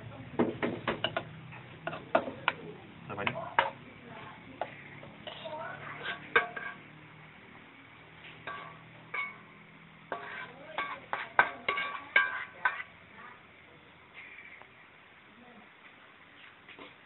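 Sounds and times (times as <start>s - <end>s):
metal spatula scraping a wok: 4.6s - 7.0s, 8.2s - 13.1s.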